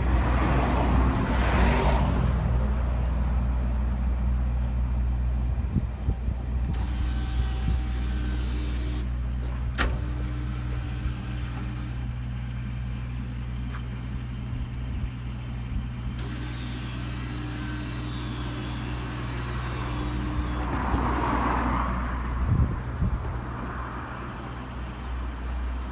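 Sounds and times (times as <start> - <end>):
low engine hum: 0.0 - 25.9
bollard motor rising: 3.4 - 25.9.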